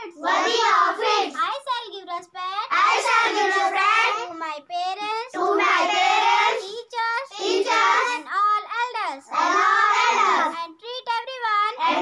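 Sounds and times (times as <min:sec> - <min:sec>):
girls chanting in unison: 0:00.0 - 0:01.4, 0:02.7 - 0:04.4, 0:05.3 - 0:08.3, 0:09.3 - 0:10.6, 0:11.8 - 0:12.0.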